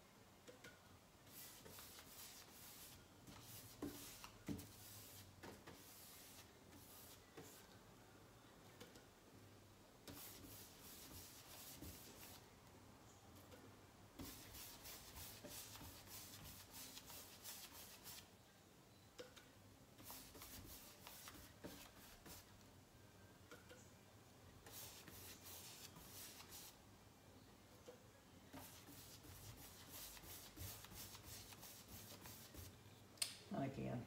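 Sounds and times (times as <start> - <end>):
paintbrush swishing on panel: 1.3 - 7.7, 10.1 - 12.5, 14.2 - 18.3, 20.0 - 22.5, 24.6 - 26.8, 28.5 - 32.7.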